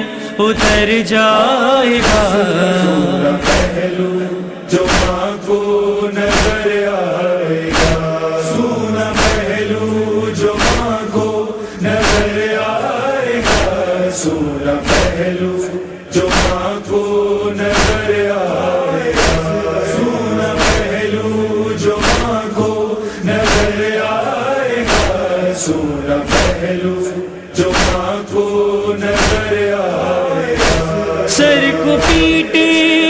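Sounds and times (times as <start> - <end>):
voices chanting a lament: 0.0 - 33.0
sharp beat: 2.0 - 5.6.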